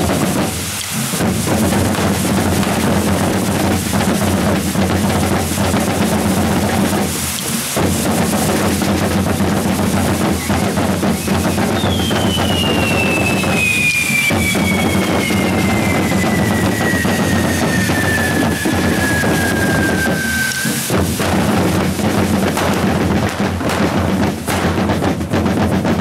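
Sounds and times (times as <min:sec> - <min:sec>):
steady high hiss: 0:00.0 - 0:24.9
rolling drums music: 0:00.0 - 0:26.0
high whistle sliding down: 0:10.2 - 0:21.1.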